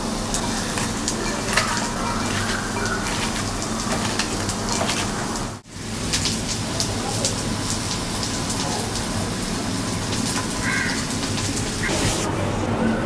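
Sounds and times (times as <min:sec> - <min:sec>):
onions crackling in glass bowl: 0:00.2 - 0:06.6.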